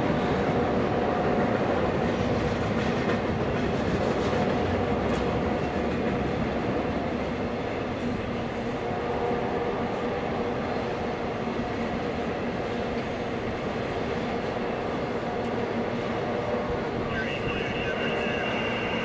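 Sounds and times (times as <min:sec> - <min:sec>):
train wheels on rail: 0:00.0 - 0:19.0.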